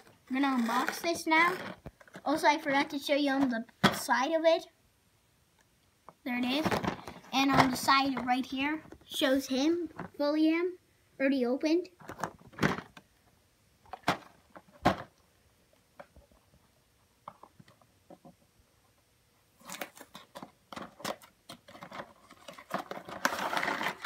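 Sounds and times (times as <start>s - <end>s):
packaging clicking and rustling: 19.6s - 24.0s.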